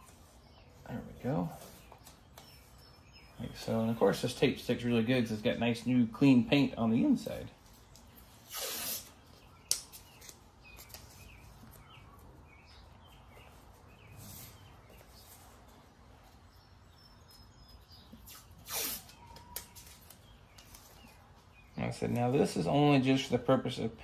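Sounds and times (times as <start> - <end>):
tape ripping off roll: 8.4 - 10.4, 18.2 - 20.1.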